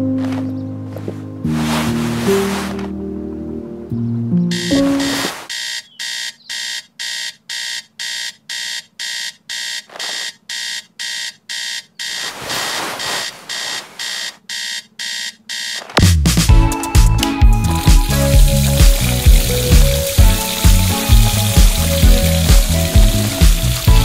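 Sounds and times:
bedcovers rustling: 0.0s - 3.1s, 4.8s - 5.5s, 12.2s - 14.4s
alarm clock beeping: 4.5s - 16.0s.

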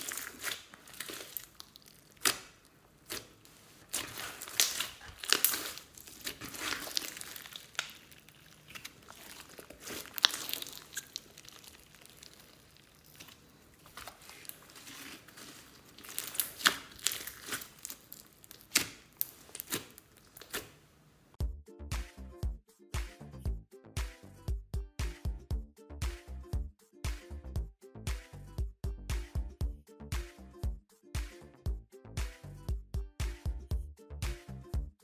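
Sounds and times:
slime crackling and popping: 0.0s - 20.8s.

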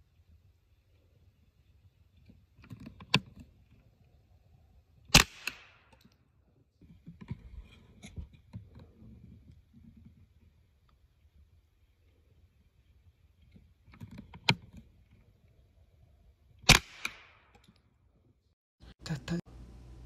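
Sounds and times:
rifle shot with echo: 5.1s - 5.9s, 16.7s - 17.6s
rifle clicks: 5.1s - 6.2s, 16.7s - 17.9s.

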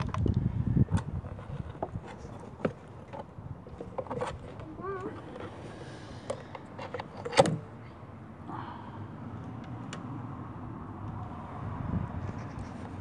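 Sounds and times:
rustling scrape: 1.2s - 7.4s, 12.1s - 13.0s.

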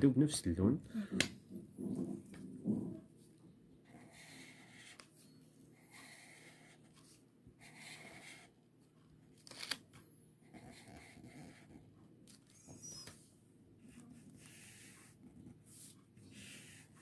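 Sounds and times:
highlighter scratching on paper: 3.9s - 8.6s, 10.4s - 11.9s, 12.6s - 17.0s.

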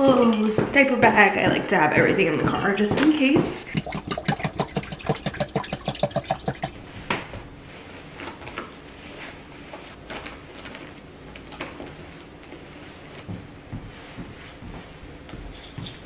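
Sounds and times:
soft knocks and rustles: 9.7s - 16.0s.

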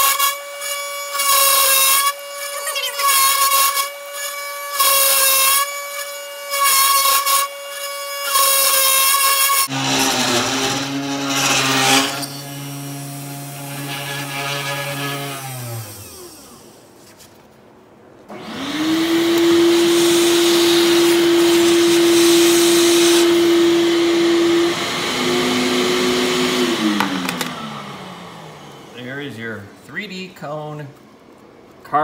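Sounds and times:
router bit cutting wood: 0.0s - 16.8s, 18.3s - 29.0s
router spindle motor whine: 9.7s - 16.8s, 18.3s - 29.0s.

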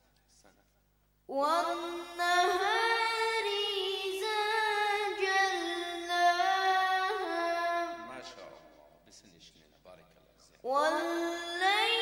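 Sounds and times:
boy chanting recitation: 1.3s - 8.7s, 10.5s - 12.0s.

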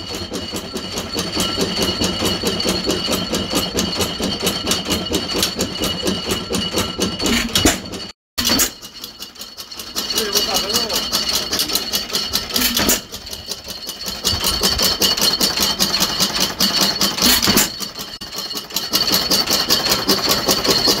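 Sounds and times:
stationary engine running: 0.0s - 21.0s.

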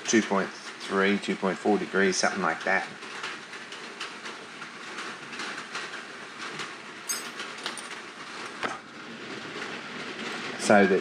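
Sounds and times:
high metallic ring: 7.1s - 7.4s.

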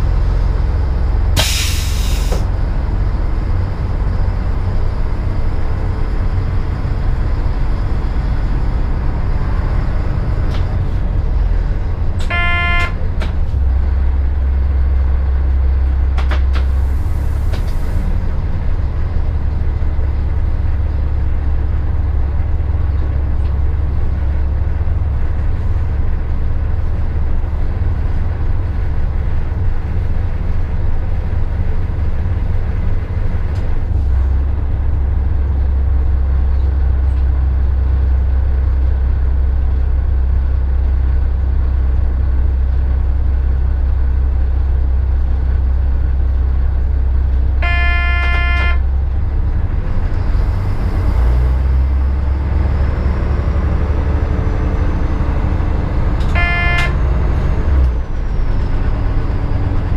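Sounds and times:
diesel railcar engine and rail rumble: 0.0s - 59.9s
brief hiss: 1.4s - 2.4s
train horn blast: 12.2s - 13.0s, 47.6s - 48.9s, 56.2s - 57.4s.

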